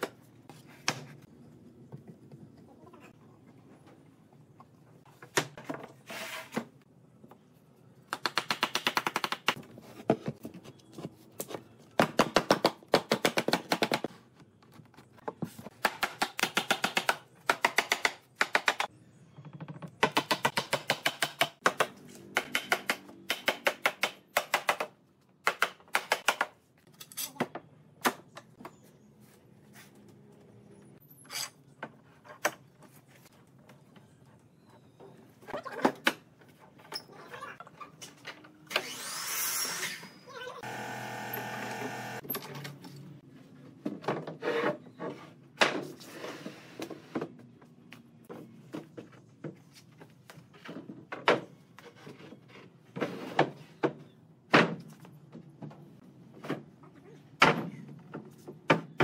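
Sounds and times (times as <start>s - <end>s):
power tool hammering: 40.6s - 42.2s.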